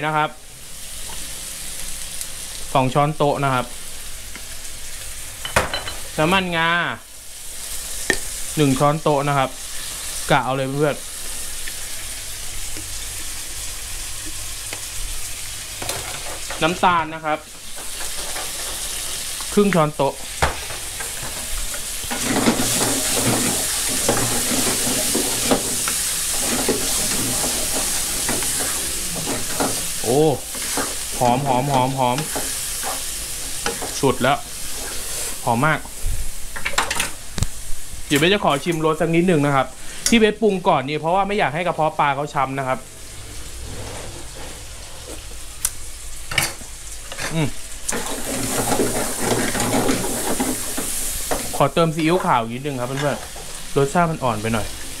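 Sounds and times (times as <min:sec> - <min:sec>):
food sizzling in a wok: 0:00.0 - 0:55.0
wooden spatula scraping pan: 0:20.6 - 0:34.0, 0:43.5 - 0:45.2, 0:47.9 - 0:51.4.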